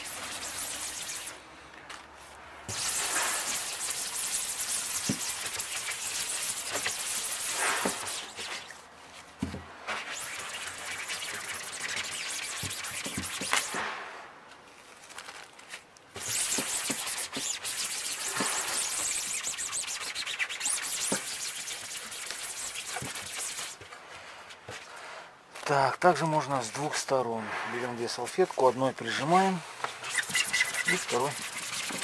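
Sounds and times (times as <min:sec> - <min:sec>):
paper napkin rubbing on mesh: 0:00.0 - 0:01.4, 0:02.7 - 0:08.8, 0:09.9 - 0:13.8, 0:16.2 - 0:23.8, 0:30.0 - 0:32.0.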